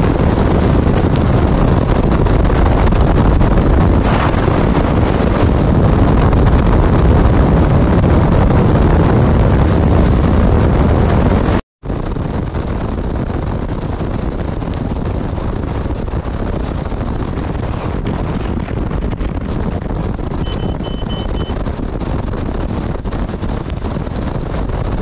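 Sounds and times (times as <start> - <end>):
wind buffeting microphone: 0.0 - 25.0
road noise: 18.8 - 25.0.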